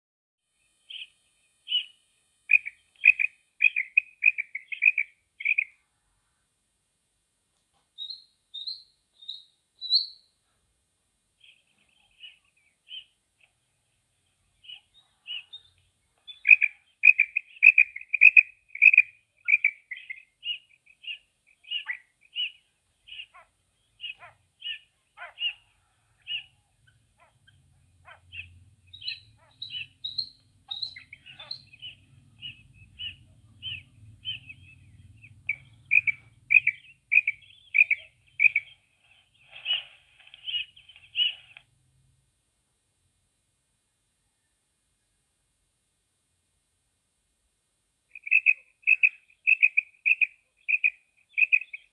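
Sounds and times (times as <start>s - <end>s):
faint low hum: 0.5s - 48.3s
quail chirping: 1.7s - 1.9s, 2.5s - 5.7s, 8.0s - 10.3s, 14.6s - 41.6s, 48.1s - 51.9s.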